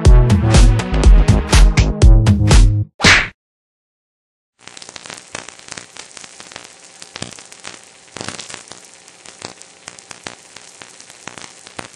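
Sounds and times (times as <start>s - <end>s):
crackles and pops: 4.6s - 11.9s
steady hiss: 4.6s - 11.9s.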